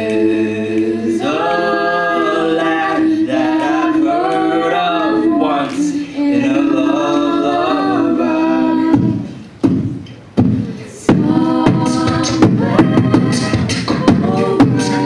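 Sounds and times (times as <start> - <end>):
a cappella group singing harmony: 0.0 - 15.0
deep vocal-percussion hits: 8.8 - 15.0.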